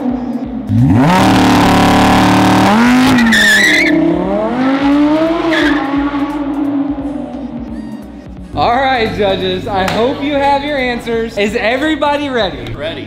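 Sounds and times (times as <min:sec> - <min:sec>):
sports car engine revving: 0:00.0 - 0:08.4.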